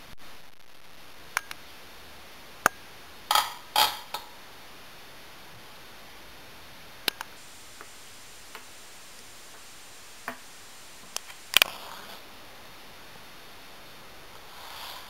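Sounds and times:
match being struck and lit: 0:07.1 - 0:12.2.

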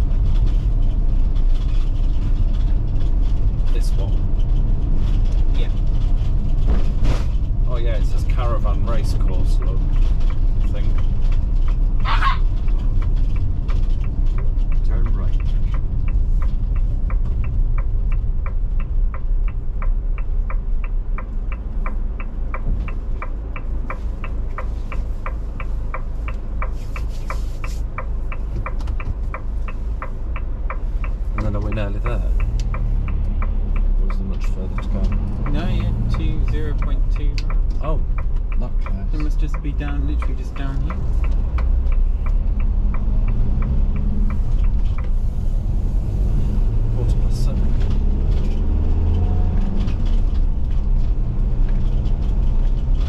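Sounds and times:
road and engine rumble: 0:00.0 - 0:53.0
turn indicator ticking: 0:00.0 - 0:53.0.

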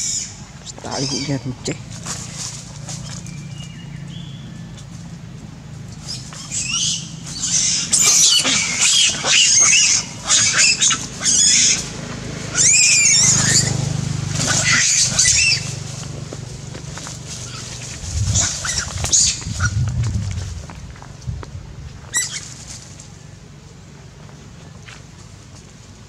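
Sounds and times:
monkeys screaming: 0:00.0 - 0:01.9, 0:06.0 - 0:15.9, 0:17.4 - 0:19.8, 0:22.1 - 0:22.5.

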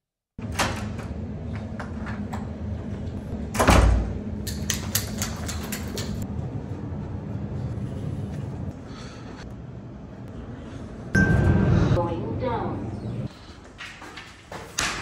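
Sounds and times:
steady low hum: 0:00.5 - 0:13.7
heavy door shutting: 0:03.4 - 0:04.2
footsteps in hallway: 0:13.3 - 0:15.0.

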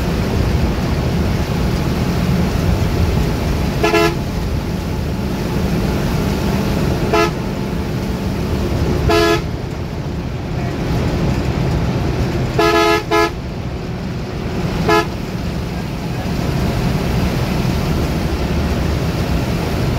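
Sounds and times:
bus engine rumble: 0:00.0 - 0:19.9
road noise: 0:00.0 - 0:19.9
bus horn tooting: 0:03.6 - 0:04.4, 0:06.9 - 0:07.9, 0:09.0 - 0:09.7, 0:12.5 - 0:13.5, 0:14.7 - 0:15.5.

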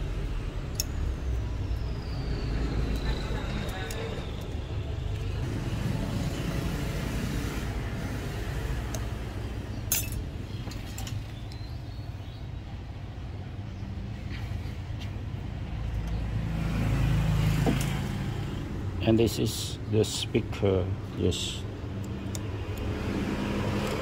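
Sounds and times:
road traffic rumble: 0:00.0 - 0:24.0.

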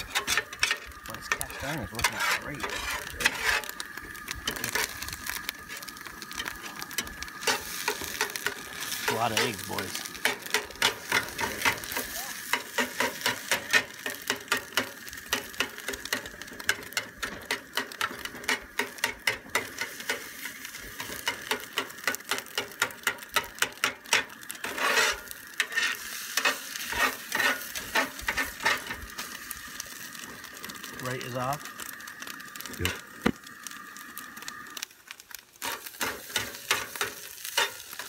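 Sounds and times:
metal spatula scraping pan: 0:00.0 - 0:03.8, 0:06.3 - 0:21.7, 0:22.4 - 0:29.2, 0:35.6 - 0:38.0
eggs sizzling: 0:00.0 - 0:38.0.

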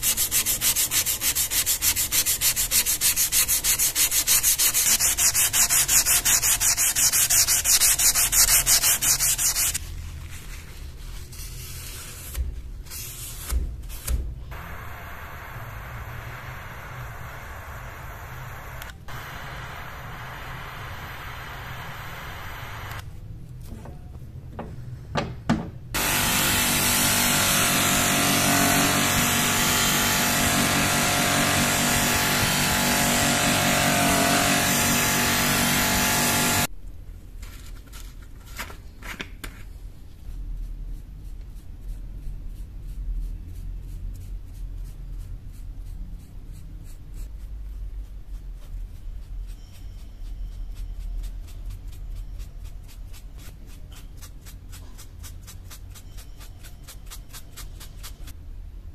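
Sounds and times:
loud rushing hiss with tone: 0:14.5 - 0:23.0.

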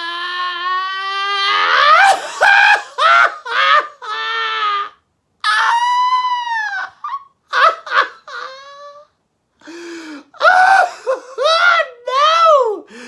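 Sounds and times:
loud cry: 0:01.0 - 0:08.1, 0:10.4 - 0:12.9.

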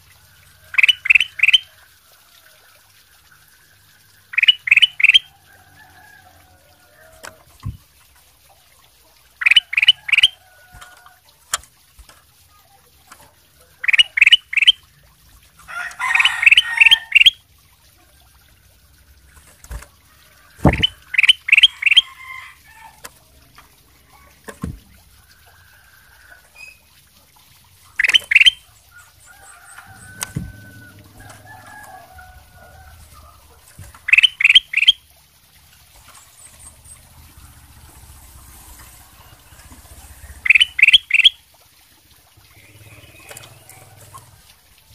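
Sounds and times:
bird singing: 0:00.8 - 0:01.7, 0:04.3 - 0:05.3, 0:09.4 - 0:10.4, 0:13.8 - 0:14.8, 0:20.6 - 0:22.1, 0:27.9 - 0:33.1, 0:34.1 - 0:35.0, 0:39.1 - 0:41.4, 0:42.5 - 0:44.2.

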